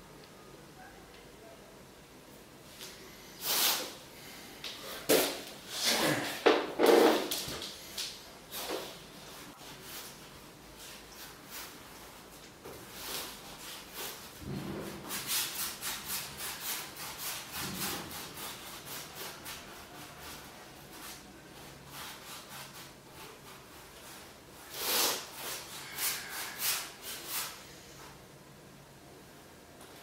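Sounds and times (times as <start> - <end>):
painting tool rubbing strokes: 13.0 - 28.1.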